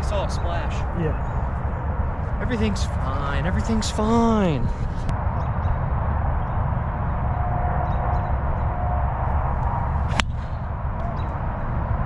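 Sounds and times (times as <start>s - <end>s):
steady low rumble: 0.0s - 12.0s
golf ball struck sharp crack: 10.0s - 10.6s.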